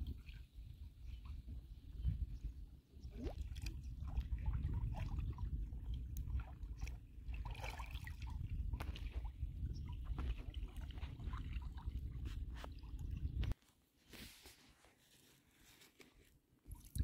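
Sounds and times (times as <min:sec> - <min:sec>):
small splashes and drips: 0:03.0 - 0:13.6
water sloshing around wading legs: 0:03.1 - 0:13.6.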